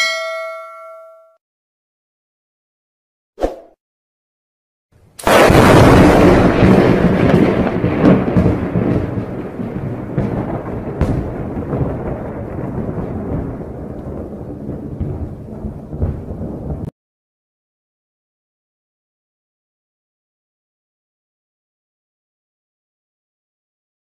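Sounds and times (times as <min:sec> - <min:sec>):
thunder crack and rumble: 0:05.2 - 0:16.9.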